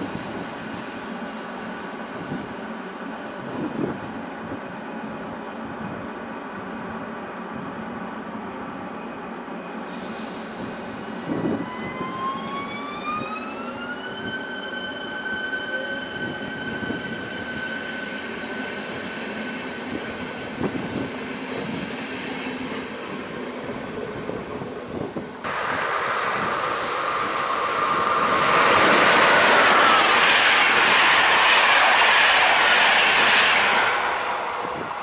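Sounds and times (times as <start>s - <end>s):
short hiss: 9.9s - 11.2s
train wheels rumbling on rails: 9.9s - 35.0s.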